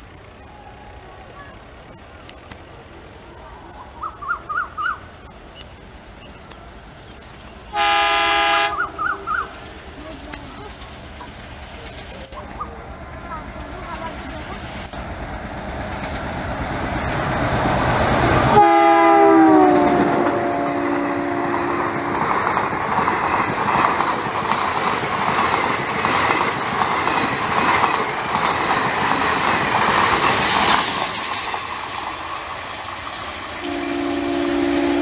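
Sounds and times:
diesel locomotive engine: 0.0s - 35.0s
train horn: 7.7s - 8.9s, 18.5s - 22.3s, 33.6s - 35.0s
train wheels clickety-clack: 10.2s - 18.6s, 21.5s - 33.8s.

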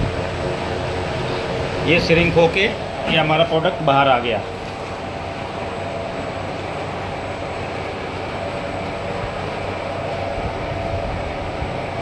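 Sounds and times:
machine fans and roller conveyor: 0.0s - 12.0s.

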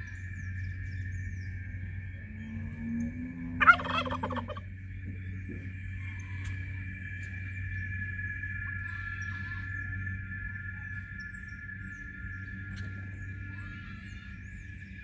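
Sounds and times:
high-pitched drone: 0.0s - 15.0s
turkey gobbling: 3.6s - 4.7s.

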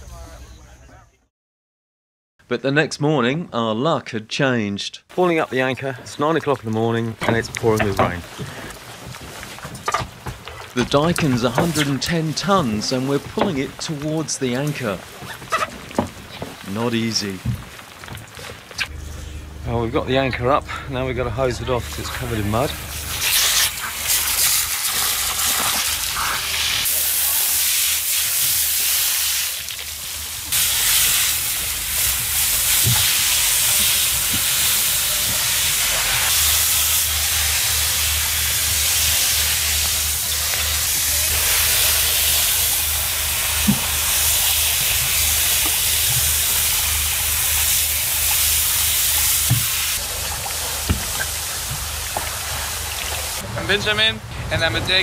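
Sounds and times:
hose spraying water jet: 5.2s - 18.9s, 21.7s - 53.5s
low steady hum: 5.2s - 26.6s.

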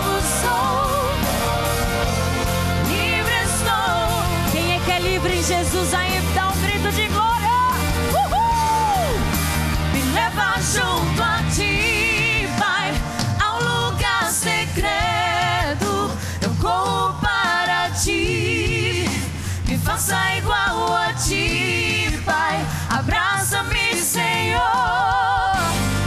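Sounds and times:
women singing gospel: 0.0s - 7.7s, 9.9s - 26.0s
instrumental backing: 0.0s - 16.0s.

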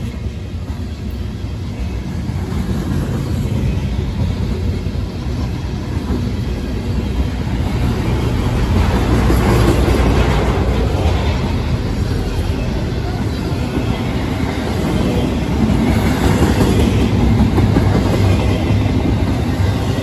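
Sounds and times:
freight train wheels rumbling on rails: 0.0s - 20.0s.

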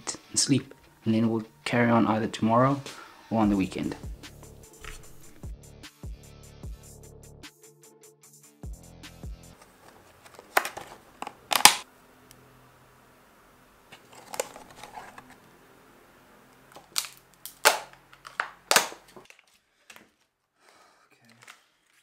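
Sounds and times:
plastic packaging rustling: 9.6s - 11.8s, 13.9s - 15.4s, 16.7s - 20.2s.

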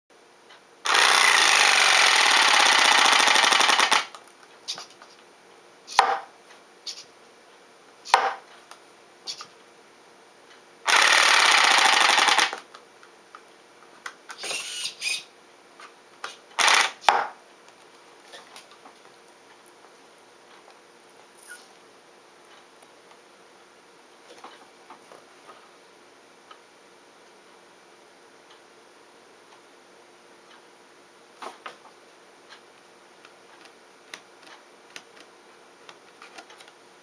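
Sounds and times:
rapid mechanical buzz: 0.8s - 4.2s, 10.8s - 12.6s.

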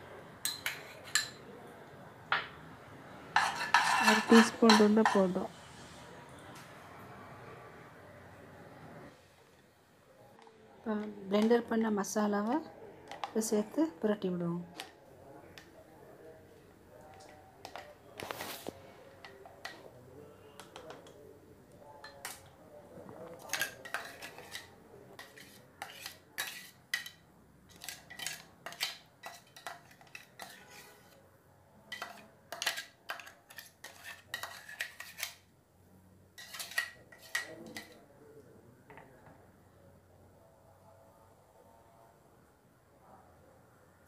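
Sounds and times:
spatula scraping metal jar: 3.4s - 5.4s, 23.4s - 31.2s, 31.9s - 35.4s, 36.4s - 38.0s.

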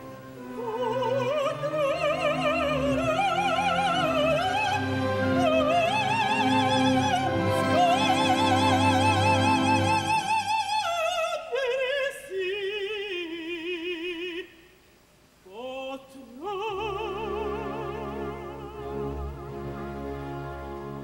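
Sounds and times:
low sustained orchestra: 0.0s - 10.8s, 16.8s - 21.0s
woman singing opera: 0.3s - 14.6s, 15.5s - 19.4s.

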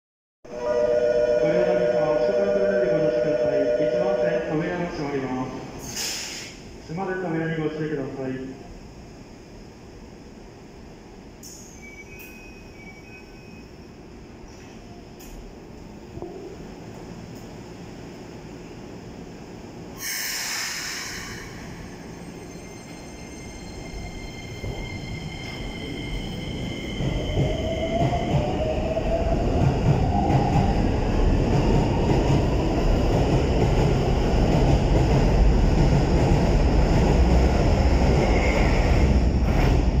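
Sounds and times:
train wheels rumbling on rails: 20.0s - 40.0s.

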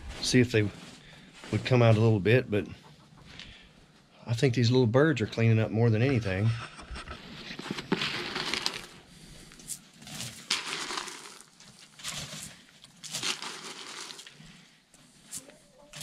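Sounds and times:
footsteps crunching in snow: 9.6s - 14.3s.

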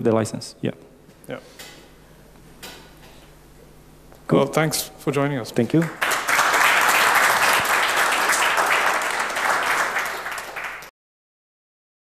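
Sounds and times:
audience applauding: 5.8s - 10.9s.

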